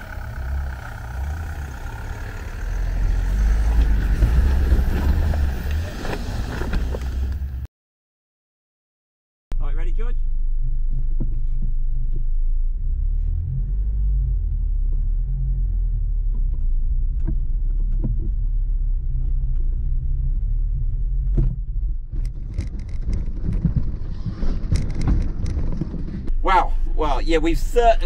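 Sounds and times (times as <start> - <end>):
car knocking over rough ground: 0.0 - 7.5, 20.9 - 26.3
diesel engine drone from cabin: 0.0 - 7.7, 26.3 - 28.0.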